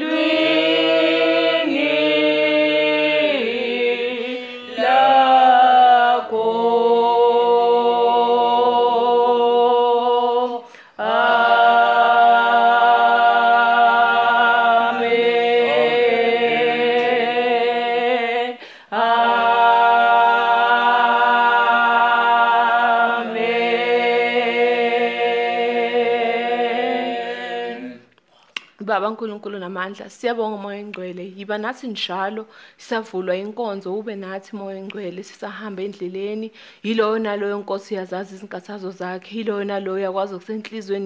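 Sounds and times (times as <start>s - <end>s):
voices singing a hymn: 0.0s - 28.1s.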